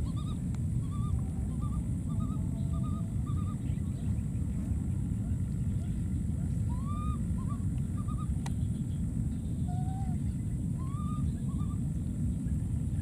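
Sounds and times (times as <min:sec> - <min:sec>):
baby monkey cooing: 0:00.0 - 0:03.7
steady low rumble: 0:00.0 - 0:13.0.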